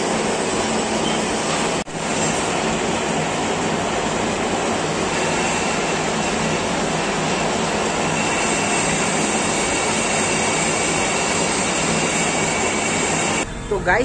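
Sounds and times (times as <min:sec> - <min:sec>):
metal lathe running: 0:00.0 - 0:13.5.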